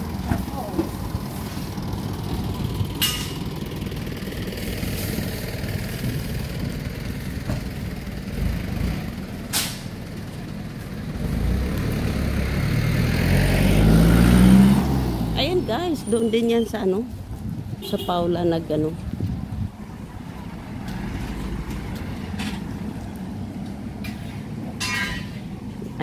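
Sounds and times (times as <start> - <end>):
heavy vehicle engine running: 0.0 - 17.8, 18.4 - 26.0
vehicle engine rising in pitch: 11.1 - 16.1.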